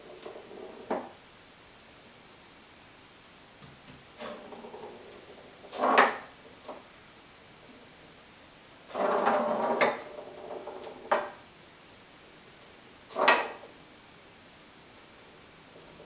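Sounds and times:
foosball rods sliding and rattling: 0.0 - 1.2, 3.7 - 6.9, 8.8 - 11.4, 13.1 - 13.8.

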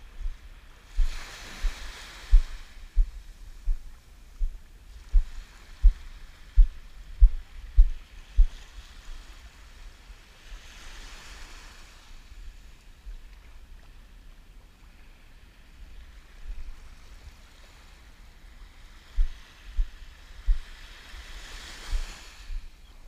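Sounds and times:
small waves washing on sand: 0.0 - 23.0
dull low thumps: 1.0 - 8.5, 19.2 - 20.6.

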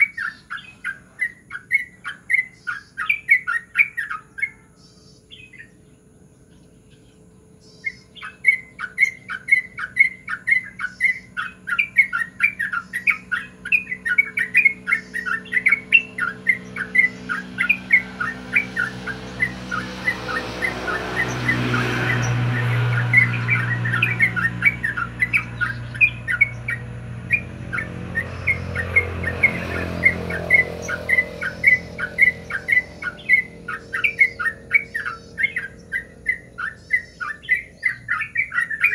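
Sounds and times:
bird singing whistled notes: 0.0 - 38.9.

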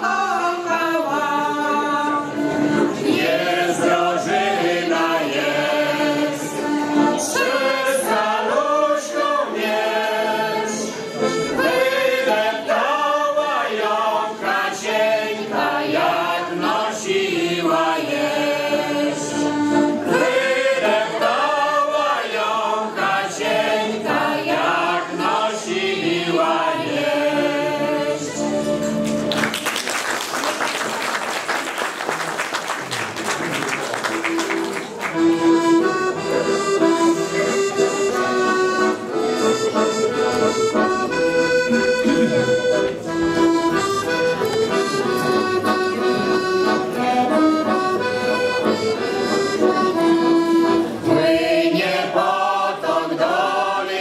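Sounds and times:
folk choir singing: 0.0 - 29.2, 35.2 - 54.0
piano accordion: 0.0 - 29.5, 34.0 - 54.0
applause: 29.0 - 35.4.

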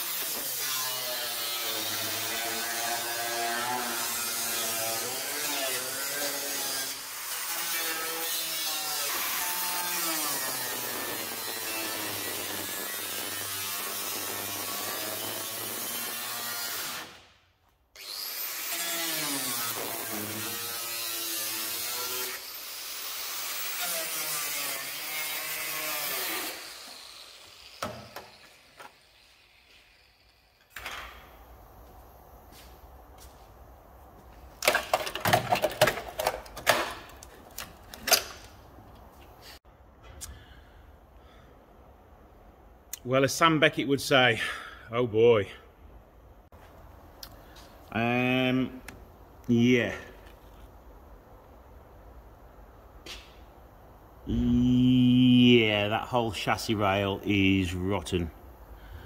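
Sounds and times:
power tool cutting metal: 0.0 - 17.2, 18.0 - 30.7.

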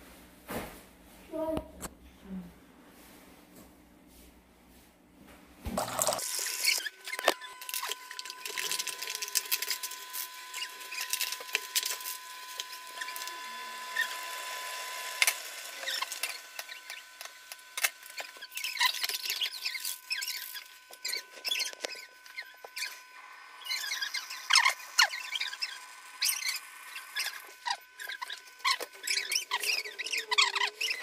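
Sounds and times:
packaging crinkling and tearing: 5.8 - 22.9.

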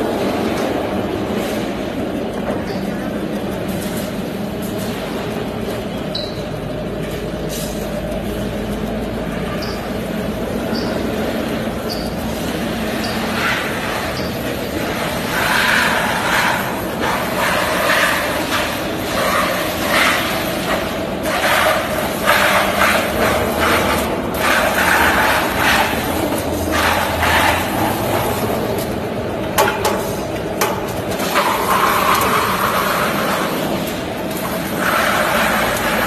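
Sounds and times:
spinning tool scraping metal sheet: 11.8 - 28.8, 30.9 - 36.0
lathe machine hum: 30.3 - 36.0.

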